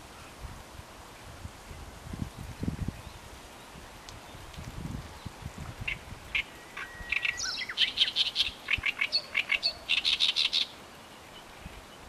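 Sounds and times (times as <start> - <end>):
songbird chirping and trilling: 5.2 - 12.0
whistled bird note: 6.4 - 8.5.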